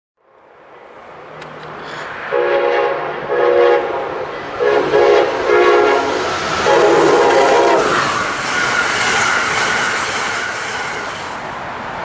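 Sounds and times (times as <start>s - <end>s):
train rumble: 0.6s - 12.0s
train air horn blasts: 2.3s - 11.3s.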